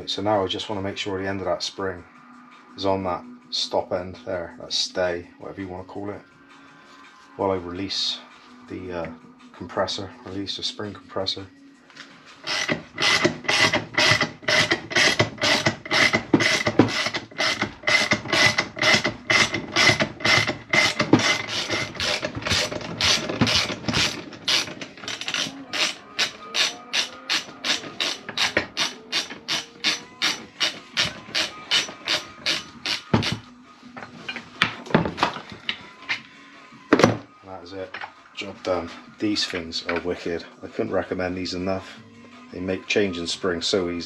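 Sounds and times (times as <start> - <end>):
ratchet clicking: 12.4 - 33.4.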